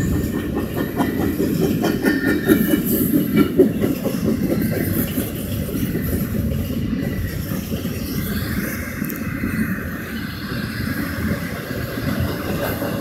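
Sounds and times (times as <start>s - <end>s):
train wheels rumbling on rail: 0.0s - 13.0s
wheels clicking over rail joints: 0.0s - 13.0s.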